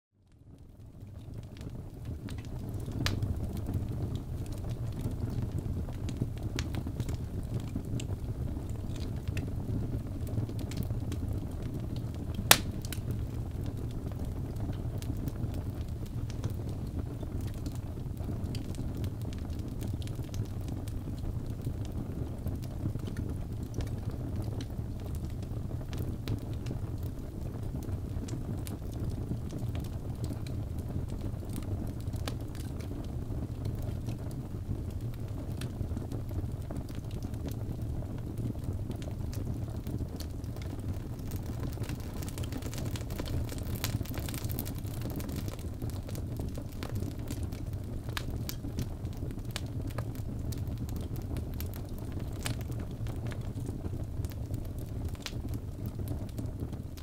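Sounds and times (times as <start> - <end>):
low rumble of flames: 0.2 - 57.0
wood fire crackling: 0.3 - 57.0
log popping: 12.3 - 13.1, 40.6 - 47.4.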